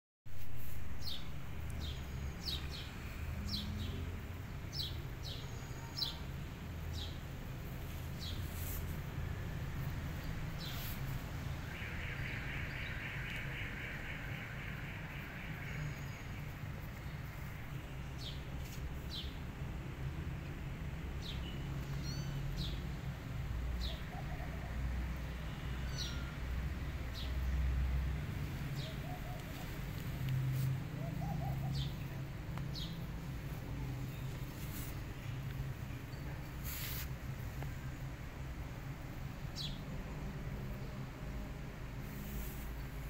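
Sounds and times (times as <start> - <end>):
small birds chirping: 21.2 - 22.9, 25.5 - 26.3, 28.3 - 37.7.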